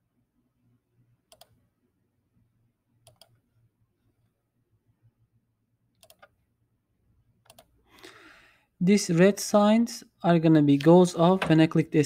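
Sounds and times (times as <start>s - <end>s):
computer mouse clicks: 1.3s - 1.6s, 3.0s - 3.4s, 6.0s - 6.4s, 7.4s - 7.7s.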